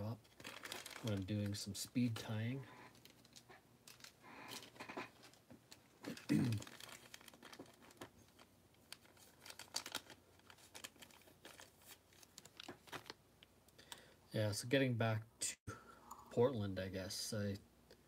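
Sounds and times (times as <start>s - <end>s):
faint crinkling and clicks: 0.2s - 14.2s.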